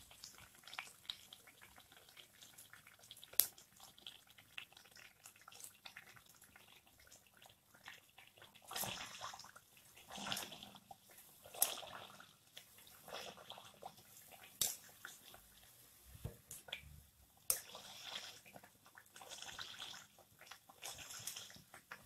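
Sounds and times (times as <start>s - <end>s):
oil sizzling and crackling: 0.0s - 22.0s.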